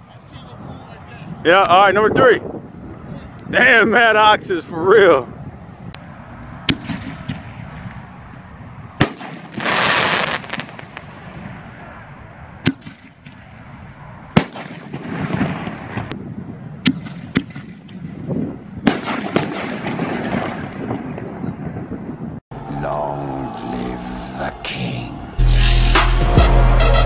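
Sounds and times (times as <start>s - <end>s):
loud rushing blast: 6.6s - 8.2s, 9.0s - 16.1s, 16.9s - 21.4s
firework crackling: 9.0s - 11.6s, 14.4s - 16.1s.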